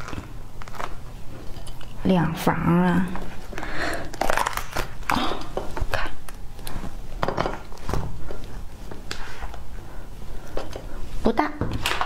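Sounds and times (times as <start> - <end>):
fibrous pith tearing: 0.0 - 1.1, 4.0 - 6.7
fruit husk cracking: 4.1 - 5.6.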